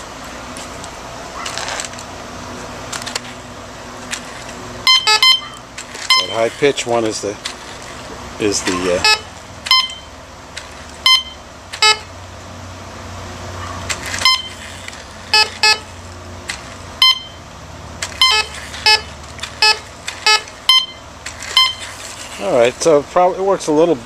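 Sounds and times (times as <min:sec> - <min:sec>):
metal detector beeps: 0:04.8 - 0:06.6, 0:08.8 - 0:10.2, 0:11.0 - 0:12.1, 0:14.2 - 0:14.7, 0:15.3 - 0:16.0, 0:17.0 - 0:17.5, 0:18.2 - 0:22.0.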